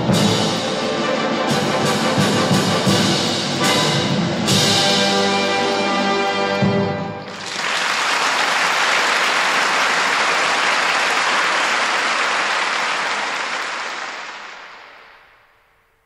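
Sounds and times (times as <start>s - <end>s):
audience applauding: 7.3s - 15.4s.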